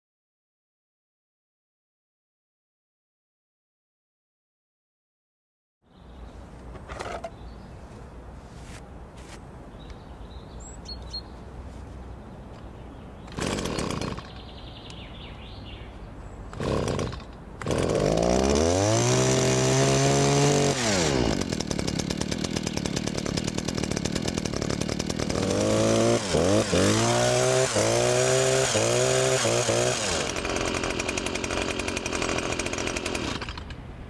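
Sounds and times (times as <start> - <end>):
starter cord pulls: 6.7 - 7.4
hedge trimmer engine revving and idling: 13.3 - 14.5, 16.5 - 33.8.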